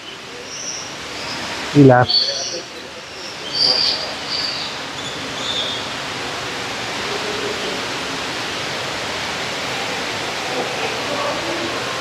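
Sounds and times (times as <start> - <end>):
waterfall rushing: 0.0 - 12.0.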